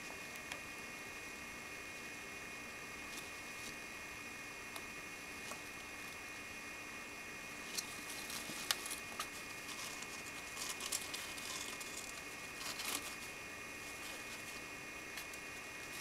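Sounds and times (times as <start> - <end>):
rodents rustling in bedding: 7.5 - 16.0.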